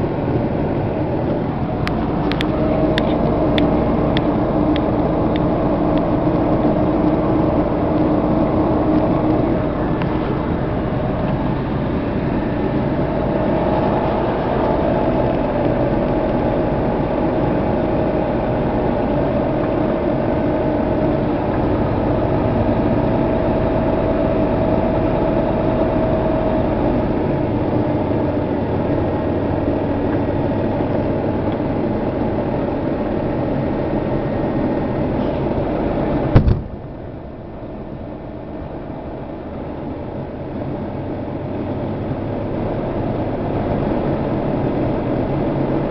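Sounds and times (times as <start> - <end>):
vehicle engine idling: 0.0 - 45.9
distant explosion boom: 36.3 - 37.0.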